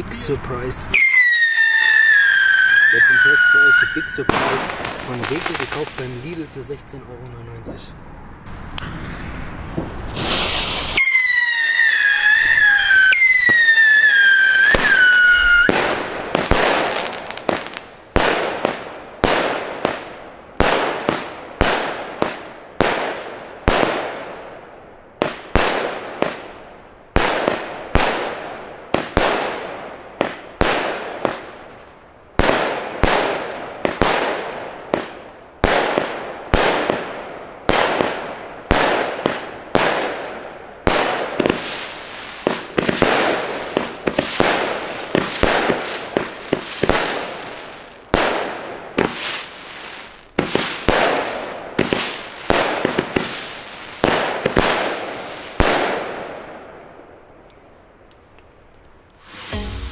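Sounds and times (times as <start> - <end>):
firework battery bangs: 2.9 - 6.7, 8.5 - 24.4
hiss and crackle: 3.0 - 6.7, 9.8 - 11.3, 49.0 - 56.0, 57.5 - 59.9.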